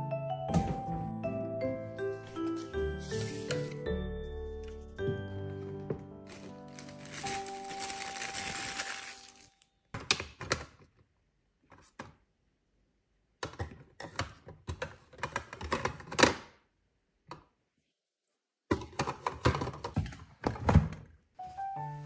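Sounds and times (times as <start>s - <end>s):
drawer pushed thunk: 0.5s - 1.0s
plastic bottles clattering: 5.9s - 10.6s, 18.7s - 21.1s.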